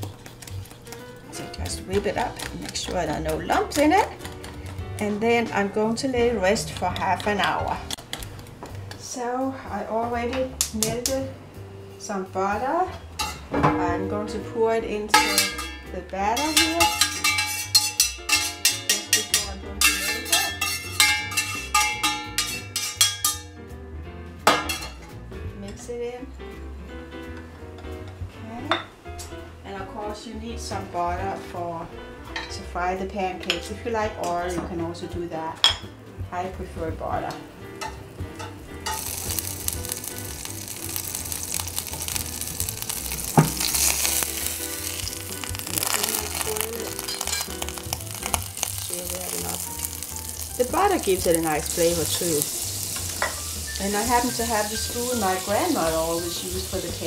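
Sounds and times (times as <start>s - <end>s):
butter sizzling in a frying pan: 0.0s - 5.0s, 15.1s - 23.4s, 37.8s - 57.0s
background music: 0.0s - 57.0s
spoon clinking against bowl: 15.2s - 23.5s.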